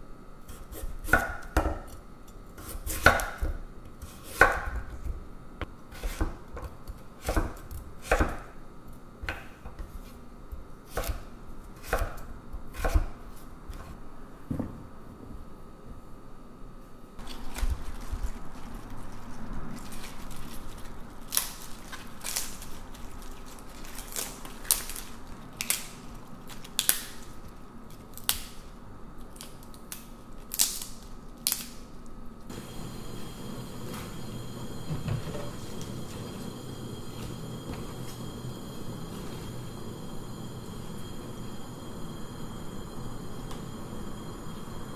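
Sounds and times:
vegetable stalks snapping: 23.5 - 27.2, 27.9 - 28.7, 29.3 - 31.8.

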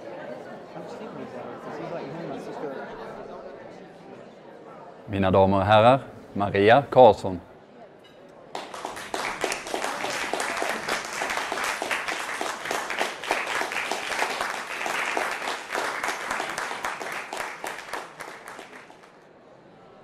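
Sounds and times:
audience applauding: 8.6 - 19.2.

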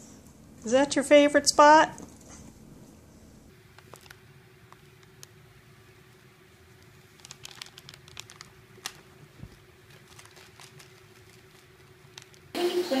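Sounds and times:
foil chip bag crackling: 3.7 - 5.4, 6.6 - 12.6.

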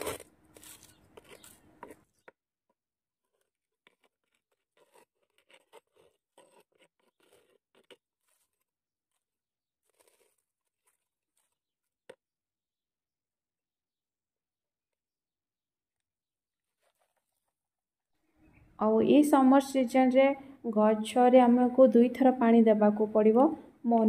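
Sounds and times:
hand tool scraping soil: 0.0 - 2.3, 3.2 - 12.2.

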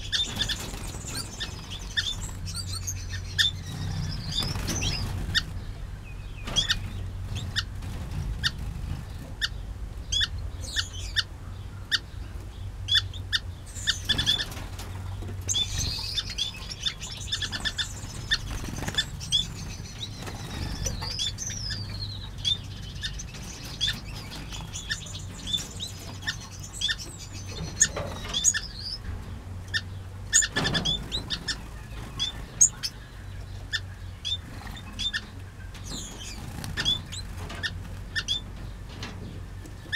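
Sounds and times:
finches chirping: 0.0 - 29.1, 29.7 - 38.8
wings flapping: 3.3 - 5.7, 6.4 - 9.5, 14.0 - 22.0, 35.8 - 38.3.

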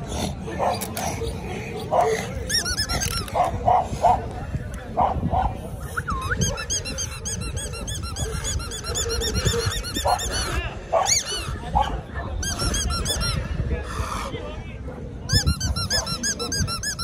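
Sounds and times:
squeaky toy squeaking: 2.0 - 3.5, 5.9 - 11.6, 12.4 - 13.4, 15.3 - 17.0.

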